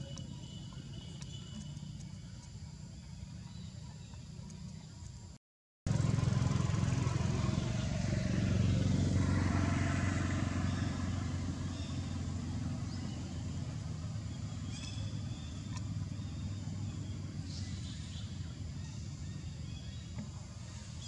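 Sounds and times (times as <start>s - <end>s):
vehicle engine humming past: 5.9s - 21.0s.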